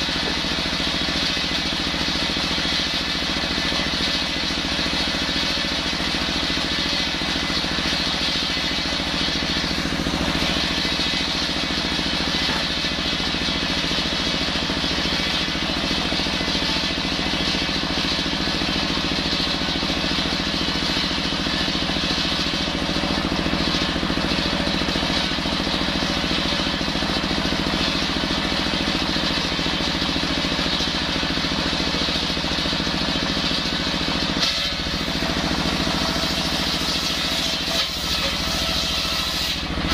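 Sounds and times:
diesel engine running: 0.0 - 39.9
circular saw ripping log: 34.4 - 39.9.

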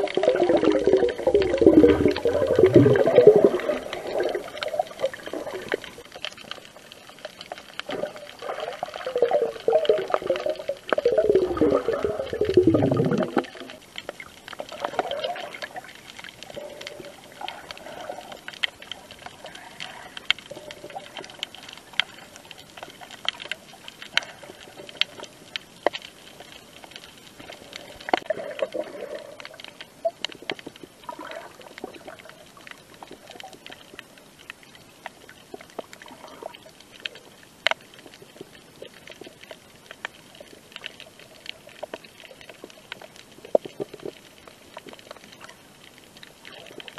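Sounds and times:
muffled underwater gurgling: 0.0 - 6.0, 7.8 - 13.9.

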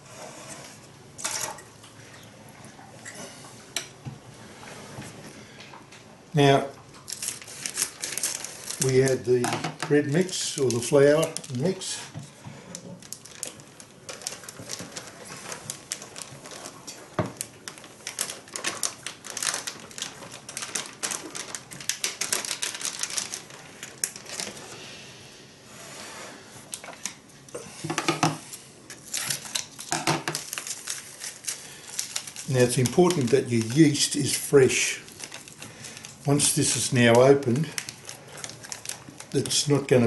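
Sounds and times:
plastic bag crinkling: 6.4 - 24.8, 28.8 - 40.0.

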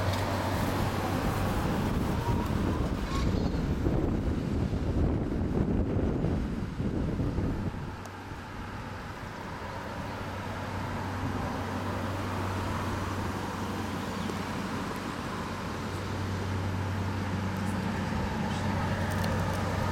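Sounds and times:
engine hum: 0.0 - 19.9
wind buffeting microphone: 0.0 - 19.9
rushing river water: 7.8 - 19.9.

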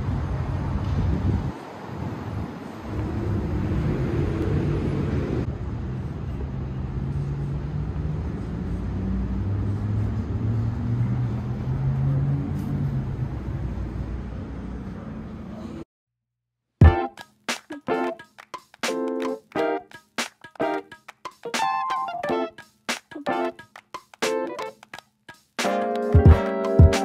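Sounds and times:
traffic engine hum: 0.0 - 15.8.

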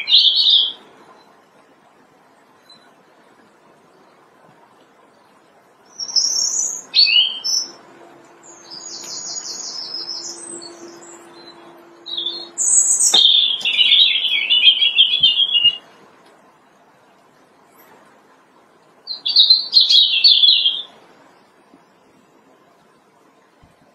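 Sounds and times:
robin singing: 0.0 - 0.8, 5.8 - 15.9, 19.1 - 21.0.

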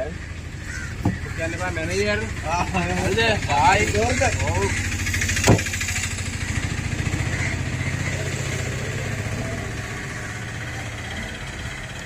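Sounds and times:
scooter engine pulsing: 0.0 - 12.0.

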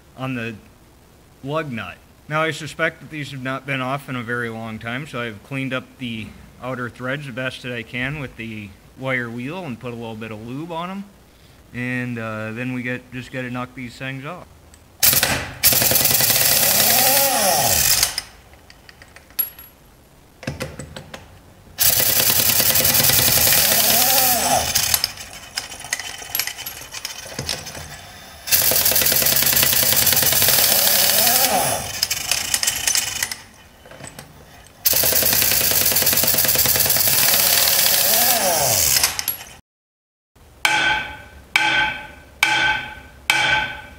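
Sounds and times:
impact wrench hammering: 15.0 - 18.4, 21.8 - 39.6, 40.6 - 43.9.

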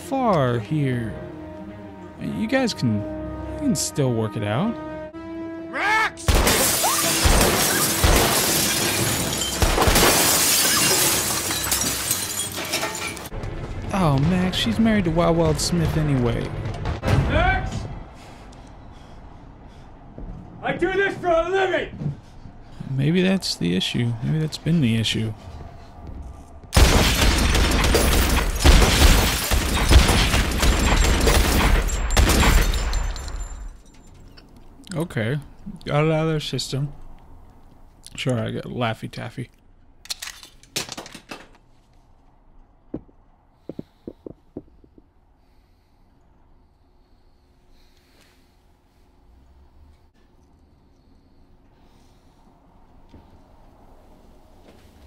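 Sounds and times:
glass windows shattering: 6.3 - 13.3, 26.8 - 34.3
heavy glass crashes: 6.3 - 13.3, 26.8 - 34.2
sharp bangs: 26.7 - 33.3.

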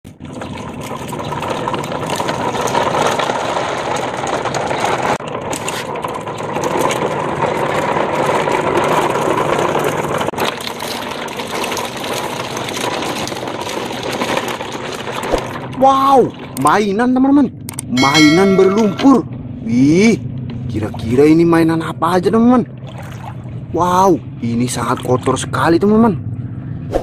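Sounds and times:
plastic toy trucks rattling: 0.3 - 15.8.

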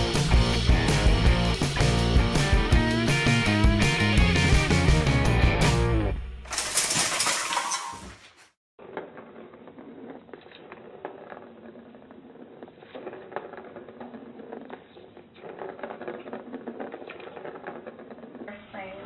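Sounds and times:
plastic ball rattling around track: 6.5 - 19.0.

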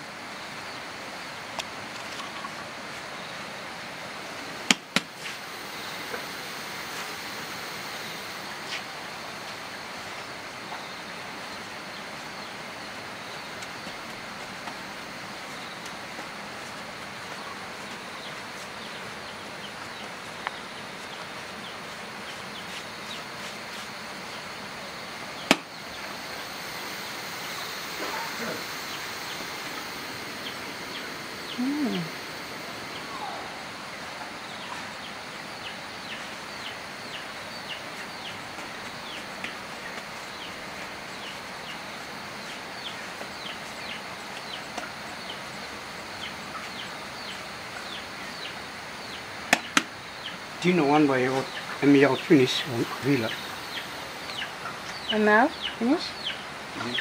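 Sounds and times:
steady background hiss: 0.0 - 57.0.

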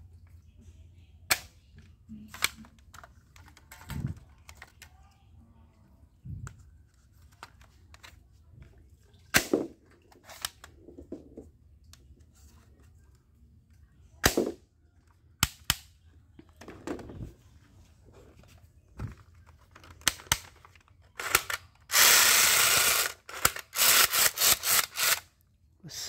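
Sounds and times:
toy shotgun plastic snaps: 1.3 - 4.8, 9.3 - 10.8, 14.2 - 14.6, 15.4 - 16.0, 19.8 - 25.4
plastic clicks: 1.3 - 5.0, 19.0 - 25.4.

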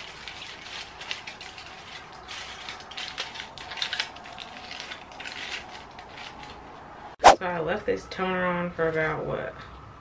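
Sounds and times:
aluminium foil crinkling: 0.0 - 6.6.

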